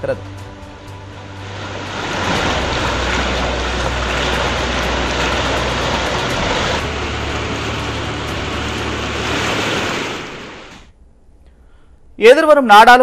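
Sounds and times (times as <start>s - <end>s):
floodwater rushing over causeway: 0.8s - 10.9s.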